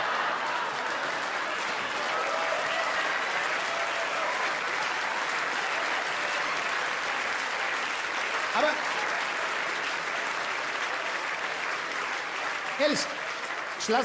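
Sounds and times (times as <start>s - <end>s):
audience laughter: 0.0s - 1.4s
audience applauding: 0.0s - 14.0s.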